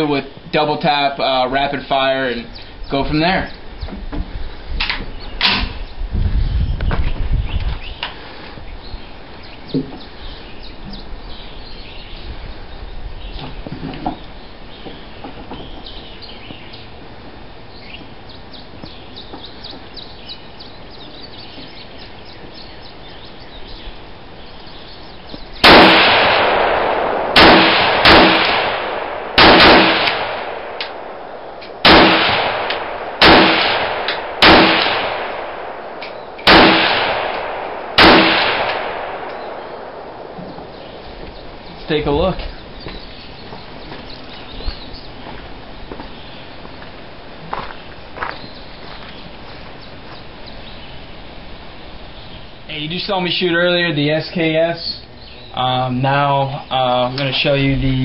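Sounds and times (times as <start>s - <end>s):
birds chirping faintly: 0.0s - 25.8s, 35.1s - 36.7s, 38.7s - 58.0s
rifle shots echoing: 25.6s - 41.6s.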